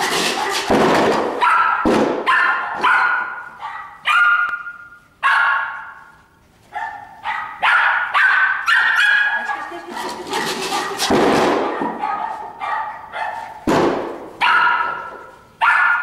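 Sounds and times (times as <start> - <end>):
heavy thuds: 0.0 - 2.3, 10.1 - 12.0, 13.7 - 14.4
dog barking shrilly: 0.0 - 6.1, 6.7 - 13.7, 14.4 - 16.0.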